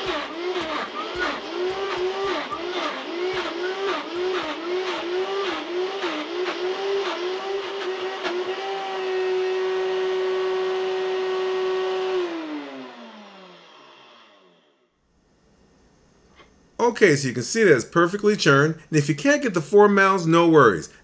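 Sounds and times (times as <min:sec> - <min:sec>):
blender motor whining: 0:00.0 - 0:14.9.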